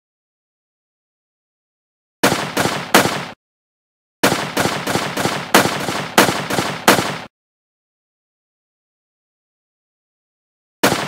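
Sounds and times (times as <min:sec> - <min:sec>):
gunshots: 0:02.2 - 0:03.4, 0:04.2 - 0:07.3.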